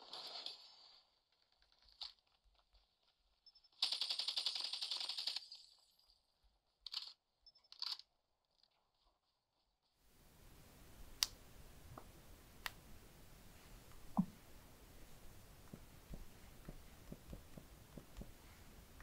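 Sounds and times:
rapid automatic gunfire: 3.8s - 5.5s.

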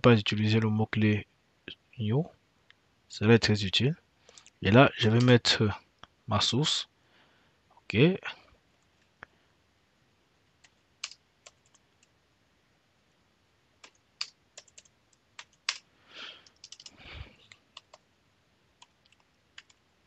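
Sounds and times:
computer keyboard typing: 10.6s - 12.1s, 13.8s - 15.8s, 16.4s - 18.0s, 18.8s - 19.8s.

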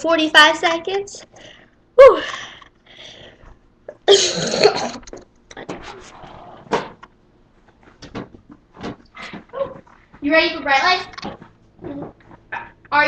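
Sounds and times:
person coughing: 4.0s - 5.1s.

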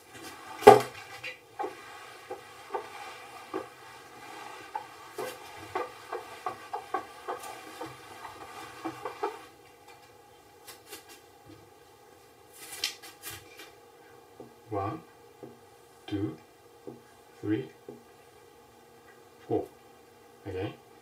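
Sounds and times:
eraser rubbing whiteboard: 0.0s - 9.6s
eraser knocking on board: 0.6s - 1.0s, 1.6s - 9.5s.

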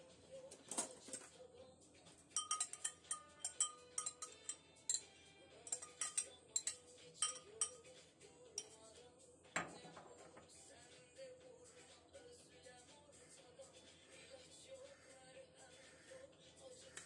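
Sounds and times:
glass jar clinking: 2.3s - 7.9s
spatula working inside jar: 2.4s - 5.0s, 5.7s - 7.8s.

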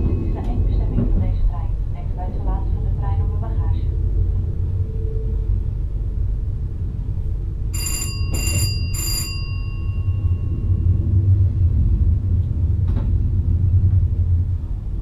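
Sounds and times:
train rumbling: 0.0s - 15.0s
bell ringing: 7.8s - 10.9s.

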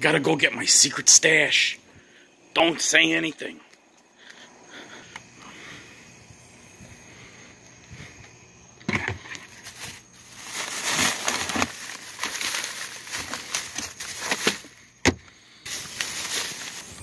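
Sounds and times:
hands rummaging through belongings: 9.4s - 14.8s, 15.7s - 17.0s.

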